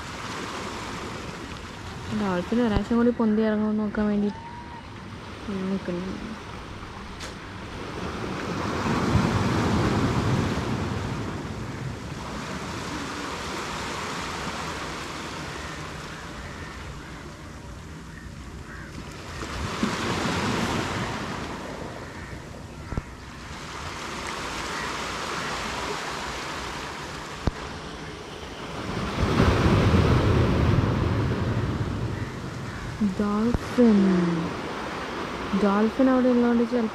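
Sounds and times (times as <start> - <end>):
sea surf breaking on beach: 0.0 - 2.8, 4.7 - 17.1, 18.7 - 22.3, 23.3 - 36.9.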